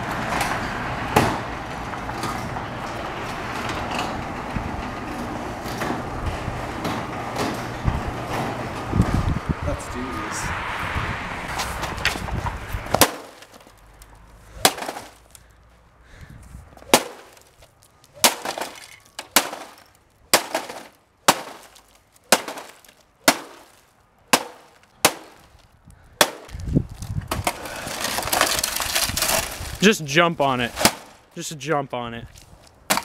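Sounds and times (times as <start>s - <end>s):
glass and plastic breaking: 14.6s - 15.4s, 16.9s - 25.6s, 27.4s - 29.8s.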